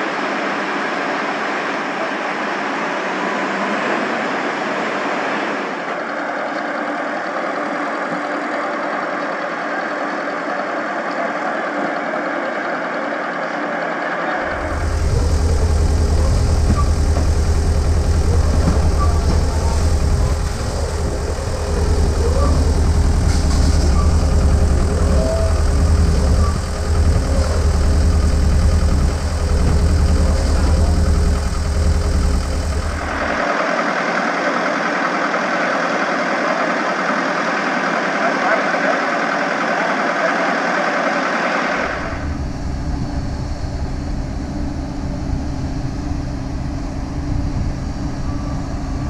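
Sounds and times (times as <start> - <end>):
engine idling drone: 3.6 - 49.0
faint steady hums: 14.4 - 33.4.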